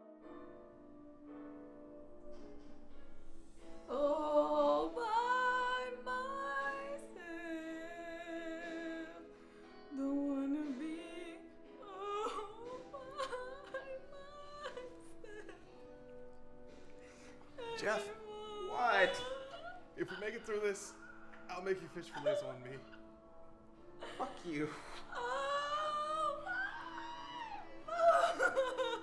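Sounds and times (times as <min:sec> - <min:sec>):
backing music: 0:00.0 - 0:29.0
woman singing with vibrato: 0:03.9 - 0:09.3, 0:10.0 - 0:15.8, 0:25.1 - 0:29.0.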